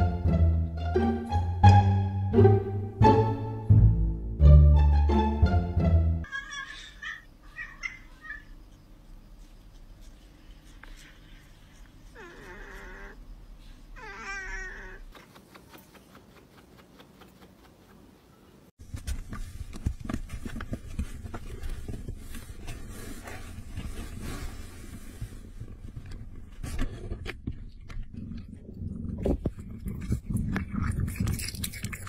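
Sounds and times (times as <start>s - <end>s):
cat meowing: 14.0s - 15.1s.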